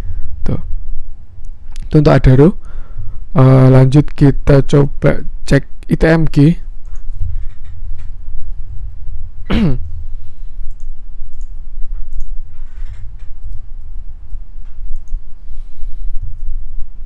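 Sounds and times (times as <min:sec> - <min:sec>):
low rumble and hum: 0:00.0 - 0:17.0
computer mouse clicks: 0:06.8 - 0:08.1, 0:10.7 - 0:15.2
short vocal sound: 0:09.5 - 0:10.0.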